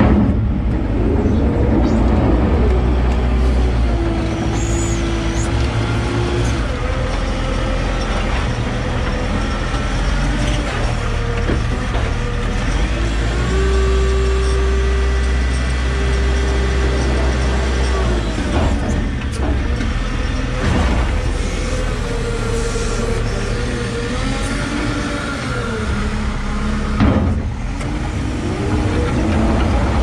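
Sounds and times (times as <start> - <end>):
diesel engine running: 0.0 - 30.0
hydraulic whine: 0.0 - 30.0.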